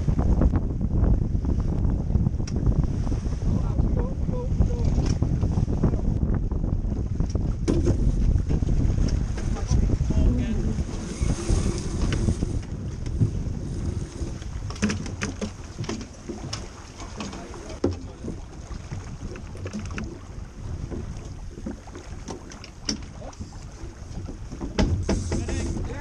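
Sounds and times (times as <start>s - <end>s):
water rushing against hull: 0.0s - 26.0s
wind buffeting microphone: 0.0s - 26.0s
knocks and clicks of boat fittings: 2.4s - 2.7s, 4.8s - 5.5s, 7.2s - 9.8s, 11.6s - 13.4s, 14.0s - 20.2s, 20.8s - 26.0s.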